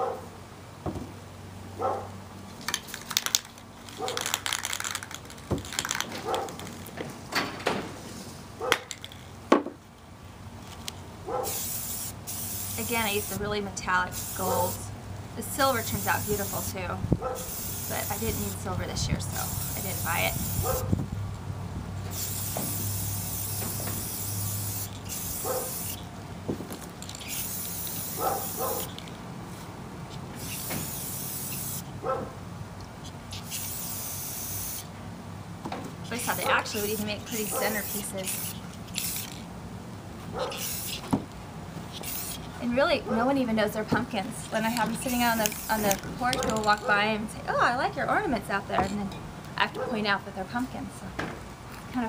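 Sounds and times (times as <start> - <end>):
dog barks: 1.8 - 2.1, 6.2 - 6.6, 11.3 - 11.6, 17.2 - 17.5, 25.4 - 25.8, 28.2 - 28.9, 32.0 - 32.4, 40.3 - 40.6
aerosol spray can hissing: 11.5 - 13.4, 14.1 - 14.8, 15.6 - 16.8, 17.4 - 18.7, 19.4 - 20.8, 22.1 - 26.1, 27.1 - 29.0, 30.4 - 31.9, 33.4 - 34.9, 36.1 - 39.4, 40.6 - 41.0, 42.0 - 42.4, 44.8 - 46.0.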